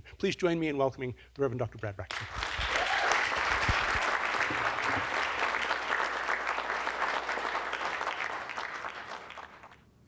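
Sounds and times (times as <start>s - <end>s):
audience applauding: 2.1s - 9.8s.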